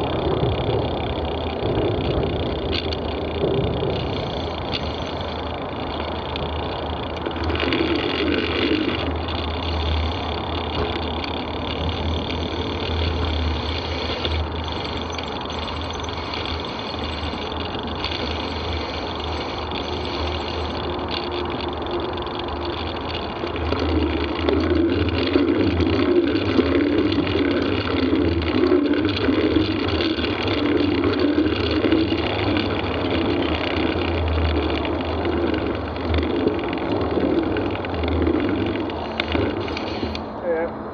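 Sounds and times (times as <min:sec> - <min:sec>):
tyres through wet mud: 0:00.0 - 0:40.4
bicycle tyres rolling: 0:00.0 - 0:40.7
motorway traffic: 0:00.0 - 0:40.9.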